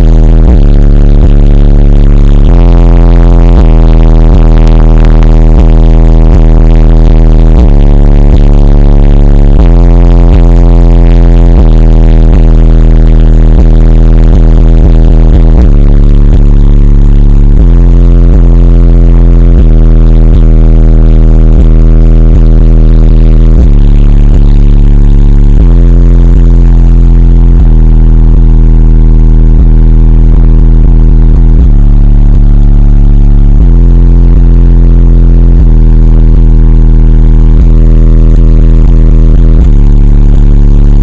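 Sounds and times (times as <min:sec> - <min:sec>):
deep bass from car stereo: 0:00.0 - 0:41.0
rap music: 0:00.0 - 0:41.0.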